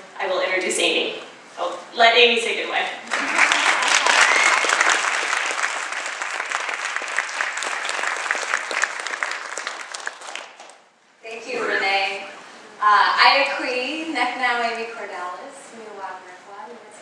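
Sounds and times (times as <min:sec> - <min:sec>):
audience applauding: 0:03.0 - 0:10.9.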